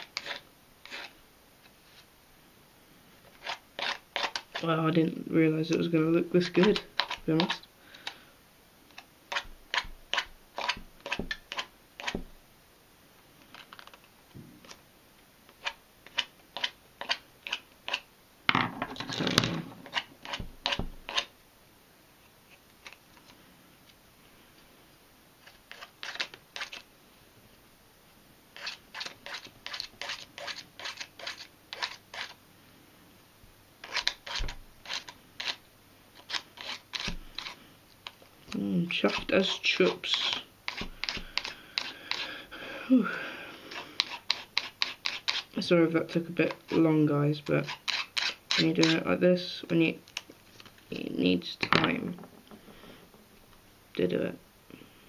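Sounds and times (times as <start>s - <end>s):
sanding stick scratching wood: 0.0s - 1.1s, 28.6s - 32.4s, 36.2s - 37.6s, 43.7s - 45.6s, 47.6s - 49.0s.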